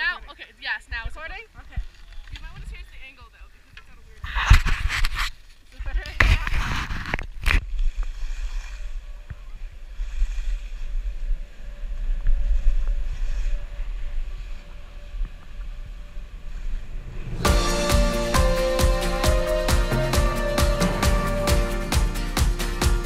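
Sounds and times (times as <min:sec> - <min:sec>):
wind buffeting microphone: 0:00.9 - 0:03.4
music: 0:17.4 - 0:23.0.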